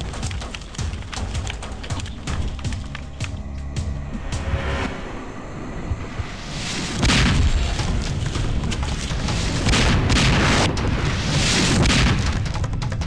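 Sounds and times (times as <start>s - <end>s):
mortar shells exploding: 7.0s - 12.8s.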